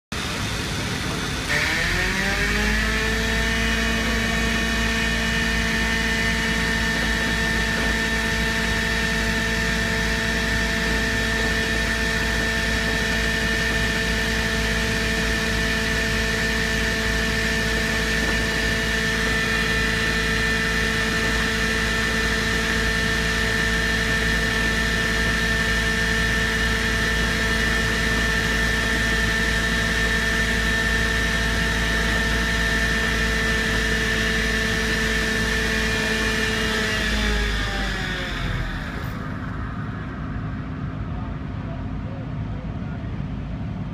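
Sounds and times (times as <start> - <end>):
air-powered vibrator whining: 0.0 - 43.9
low rumble: 37.9 - 43.9.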